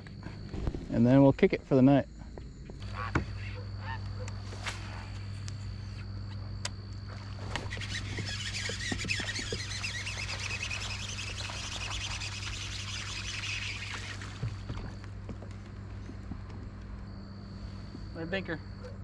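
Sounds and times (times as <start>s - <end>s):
steady low hum: 0.0s - 19.0s
birds chirping: 7.7s - 14.7s.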